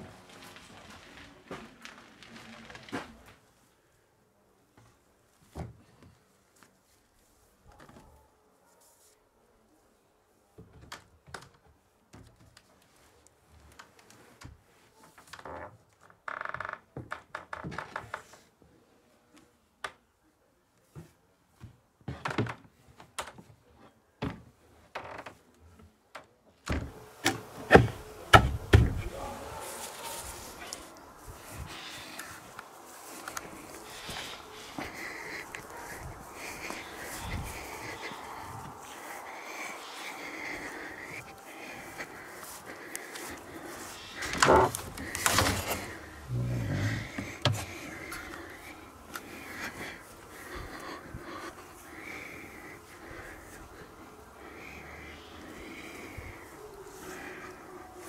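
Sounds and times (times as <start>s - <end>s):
low wooden creak: 15.3s - 18.4s, 44.0s - 47.6s
wooden hive knocks and thumps: 26.7s - 29.1s
rubbing and handling: 26.9s - 54.6s.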